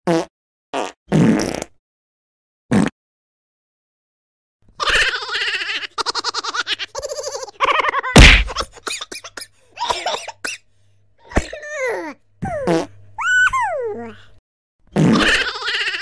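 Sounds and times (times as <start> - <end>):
loud whack: 8.2 - 8.6.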